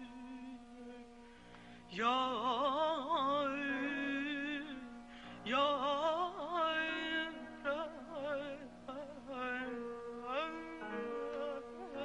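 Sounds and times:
woman singing melismatic passage: 0:05.5 - 0:12.0.

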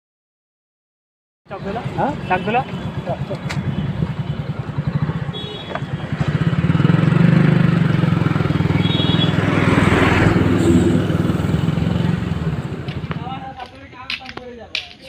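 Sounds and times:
motorcycle engine running: 0:01.6 - 0:13.6
rushing noise: 0:07.4 - 0:12.9.

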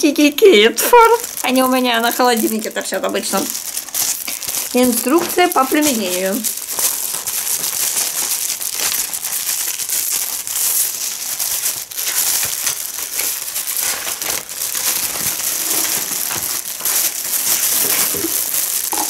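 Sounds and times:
plastic packaging crinkling: 0:00.1 - 0:19.0.

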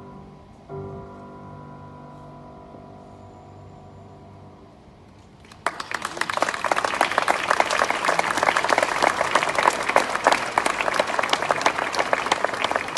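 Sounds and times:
audience applauding: 0:05.4 - 0:12.9.

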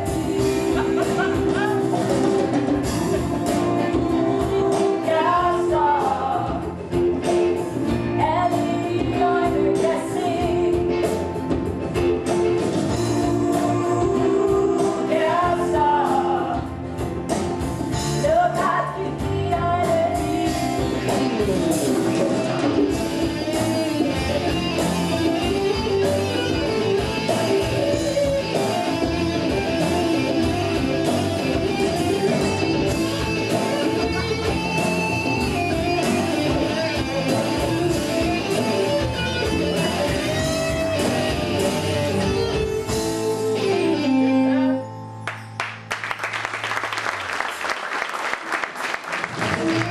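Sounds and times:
live pop-rock song: 0:00.0 - 0:45.0, 0:48.8 - 0:49.9
audience applause: 0:45.3 - 0:49.9.

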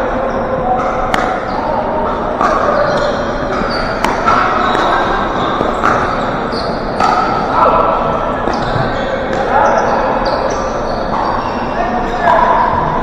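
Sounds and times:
din of play in gym: 0:00.0 - 0:13.0
paddle striking plastic ball: 0:03.6 - 0:05.0.

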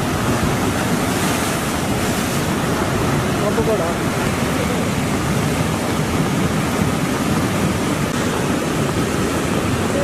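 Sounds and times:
rush of floodwater: 0:00.0 - 0:10.0.

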